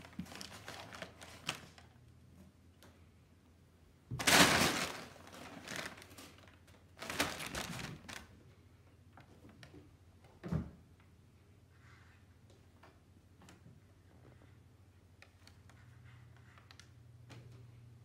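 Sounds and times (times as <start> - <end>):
packing paper crinkling: 0.0 - 1.9, 4.2 - 8.3.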